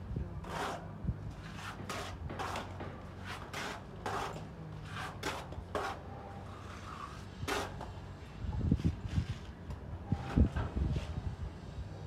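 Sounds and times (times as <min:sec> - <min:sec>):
trowel scraping mortar: 0:00.4 - 0:08.0.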